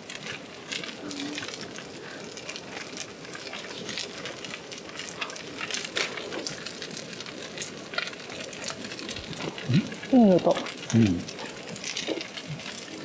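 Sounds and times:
fried rice sizzling in a pan: 0.0 - 13.0.

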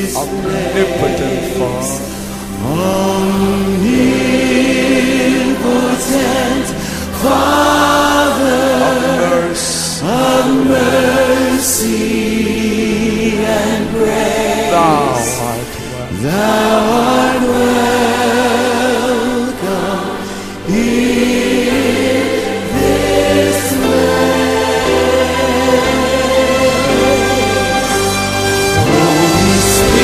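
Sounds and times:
person singing a song: 8.2 - 28.1, 28.8 - 30.0.

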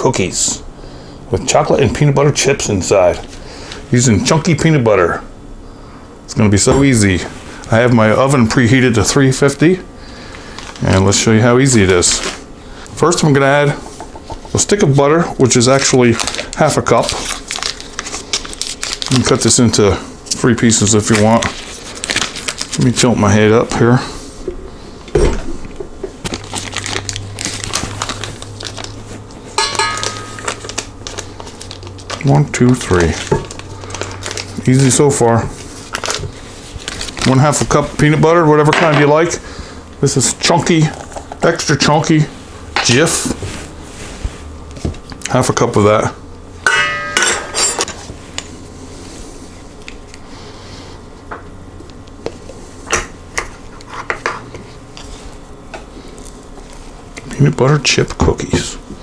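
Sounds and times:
steady low hum: 0.0 - 59.0
paper wrapper crinkling: 10.3 - 11.2, 15.4 - 19.8, 20.4 - 23.7, 26.2 - 29.4, 30.0 - 38.1
clink with ringing: 29.6 - 30.4.

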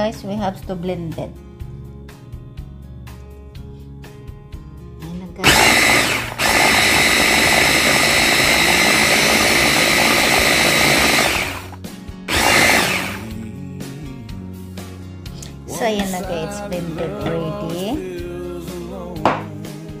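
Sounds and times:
electric food chopper whirring: 5.4 - 13.4.

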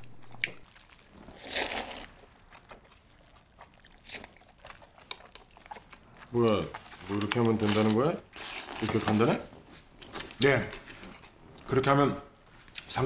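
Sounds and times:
person chewing: 0.1 - 9.3
person slurping noodles: 1.1 - 2.2.

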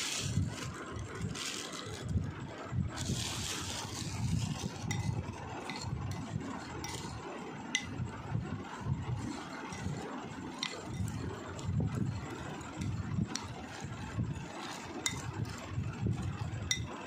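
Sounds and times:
spoon stirring dry snack: 0.0 - 2.2, 3.0 - 17.0.

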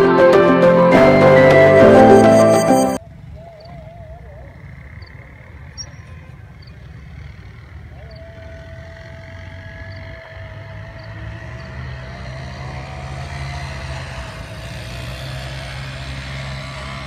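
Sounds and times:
thin wavering high tone: 0.0 - 3.0.

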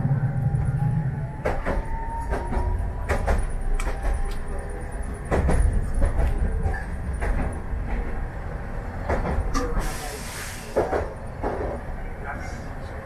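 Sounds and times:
streetcar running gear rumble: 0.0 - 13.0
wheels clacking on rail joints: 1.4 - 10.0, 10.7 - 12.6
brief hiss: 9.8 - 10.9.

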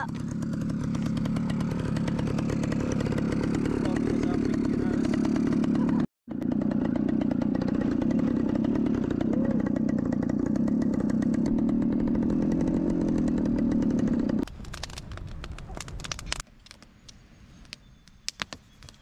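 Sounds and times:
small engine running steadily: 0.0 - 14.5.

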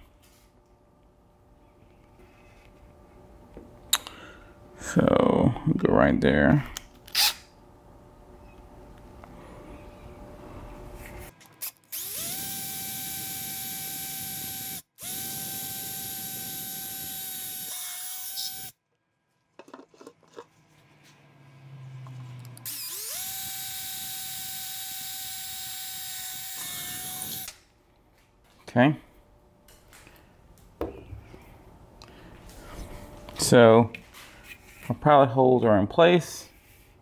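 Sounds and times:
cordless drill whining: 11.6 - 18.8, 22.6 - 27.5.

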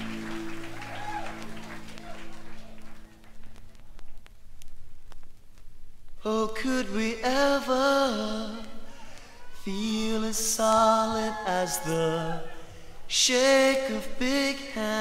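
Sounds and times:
person singing long notes: 6.2 - 15.0.

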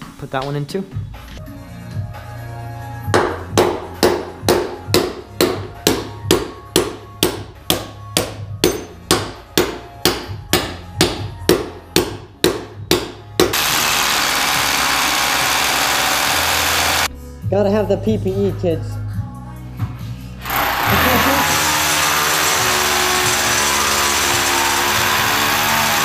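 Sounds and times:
hammer striking steel bolt: 3.2 - 13.6
hammer drill boring concrete: 13.5 - 17.1, 20.4 - 26.0.

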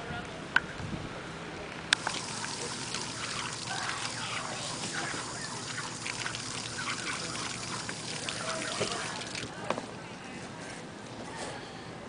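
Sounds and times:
water pouring and trickling: 2.0 - 9.6
small water splashes: 2.0 - 9.7.

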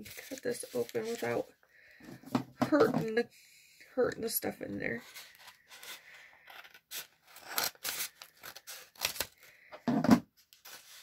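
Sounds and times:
scissors snipping envelope: 6.5 - 9.3.

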